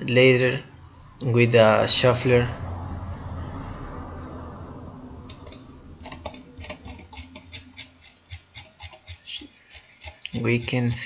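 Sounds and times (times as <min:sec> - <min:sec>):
low hum: 0:00.0 - 0:08.0.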